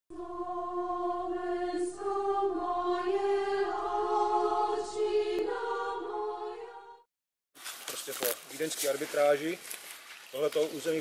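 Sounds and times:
choir holding long notes: 0:00.1 - 0:07.1.

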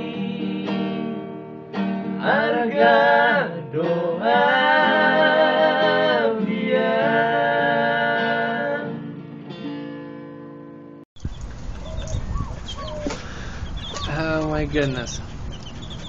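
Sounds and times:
strummed acoustic guitar: 0:00.0 - 0:11.0
men singing together: 0:02.2 - 0:09.0.

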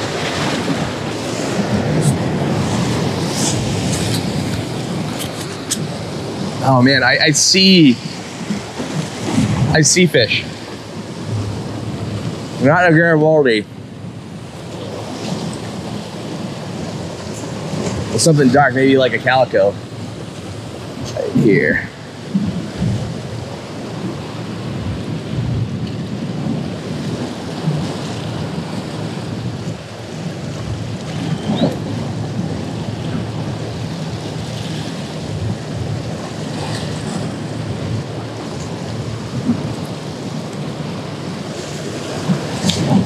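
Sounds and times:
ocean surf washing against rocks: 0:00.0 - 0:43.0
wind rumbling on microphone: 0:00.0 - 0:43.0.

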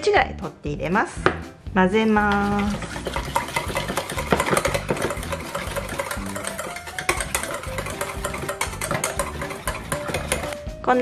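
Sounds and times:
whisk clattering in metal bowl: 0:02.2 - 0:10.7.

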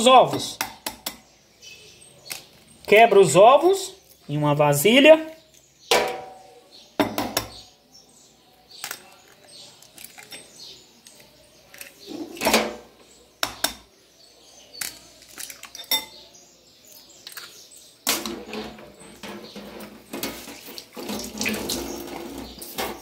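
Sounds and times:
clatter and rustle of handling: 0:08.8 - 0:12.6.

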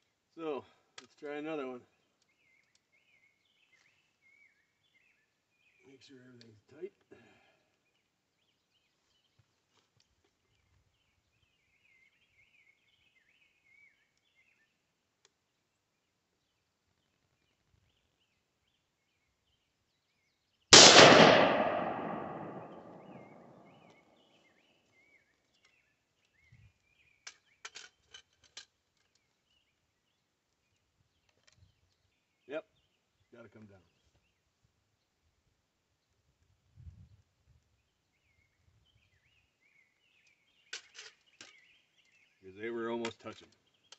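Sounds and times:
rifle shot with echo: 0:20.7 - 0:23.8.

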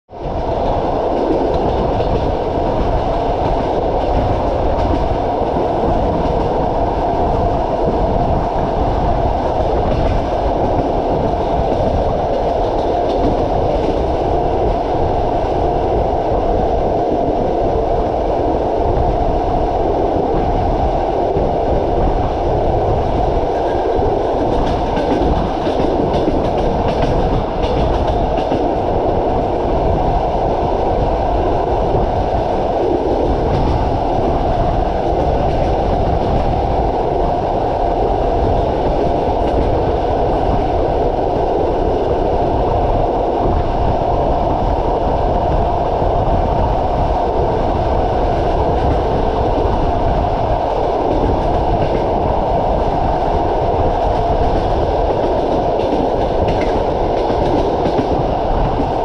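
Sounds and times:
train wheels rumbling on rails: 0:00.1 - 0:59.0.

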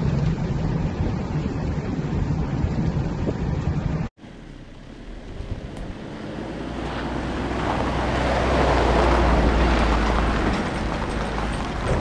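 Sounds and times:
tyres on gravel: 0:04.2 - 0:12.0
vehicle engine passing: 0:04.3 - 0:12.0.

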